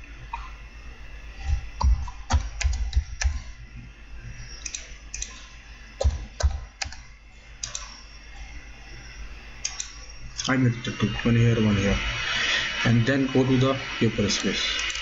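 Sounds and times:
keyboard and mouse clicks: 2.0 - 3.4, 4.6 - 5.4, 6.0 - 7.0, 7.6 - 7.9, 9.6 - 10.5.

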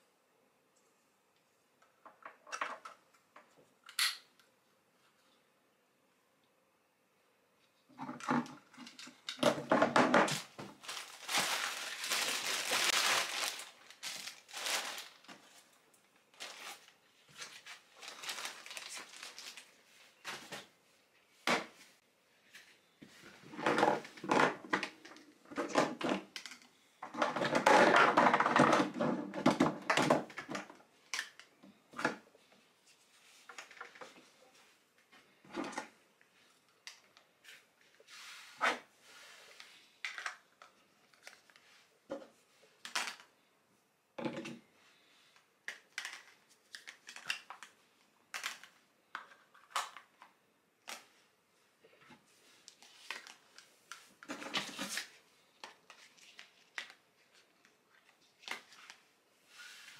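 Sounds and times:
plastic parts clicking and knocking: 8.0 - 10.5, 23.6 - 32.2, 45.6 - 51.0
plastic packaging crinkling: 10.2 - 15.7, 16.4 - 19.8.

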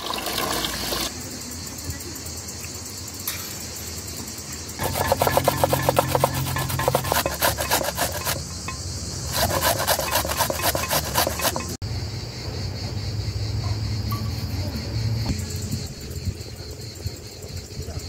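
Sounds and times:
onion grated on metal grater: 4.8 - 8.5, 9.3 - 11.8.

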